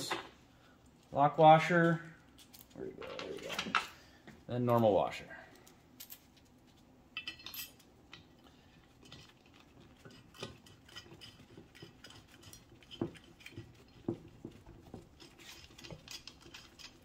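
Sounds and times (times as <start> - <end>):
metallic clinks of bolt and washers: 7.2 - 7.9.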